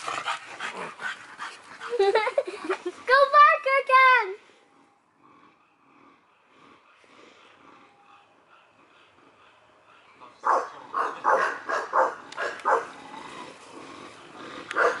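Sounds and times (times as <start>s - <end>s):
dog barking: 10.4s - 12.9s, 14.8s - 15.0s.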